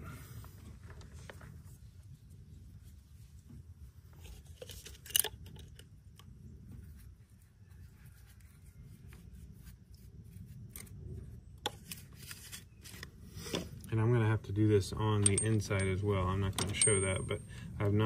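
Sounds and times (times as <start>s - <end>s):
low steady rumble: 0.0s - 18.0s.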